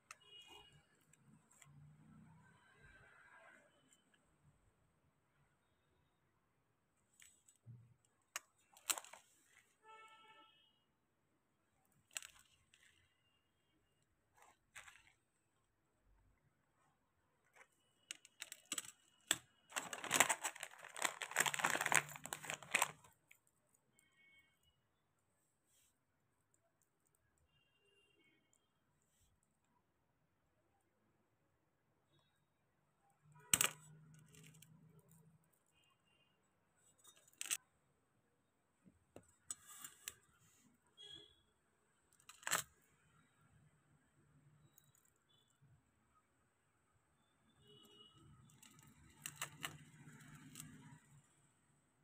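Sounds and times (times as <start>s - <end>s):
jewellery packaging clicks: 8.3s - 9.3s, 12.0s - 13.0s, 14.4s - 15.2s, 17.5s - 23.3s, 33.4s - 34.9s, 42.1s - 42.8s, 48.4s - 51.1s
packaging rustles: 8.4s - 9.6s, 14.4s - 15.2s, 17.5s - 23.4s, 48.6s - 51.0s
bubble wrap crinkling: 17.5s - 23.4s.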